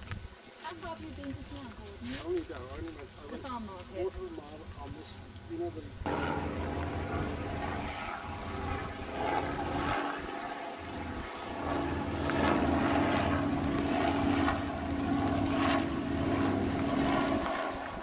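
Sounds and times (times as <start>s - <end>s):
engine drone: 6.0s - 18.0s.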